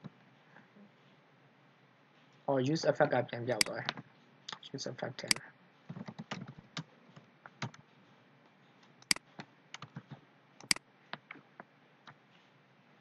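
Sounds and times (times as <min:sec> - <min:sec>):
keyboard keystrokes: 0:05.3 - 0:06.9, 0:09.0 - 0:11.4
mouse clicks: 0:09.0 - 0:10.0, 0:10.6 - 0:11.4.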